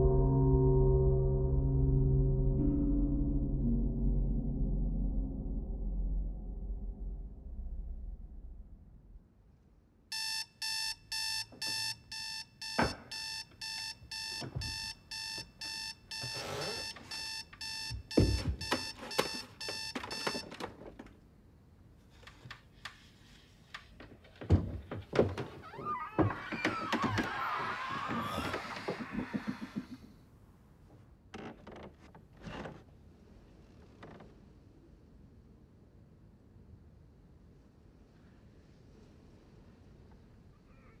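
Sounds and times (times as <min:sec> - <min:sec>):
alarm clock beeping: 0:10.1 - 0:20.5.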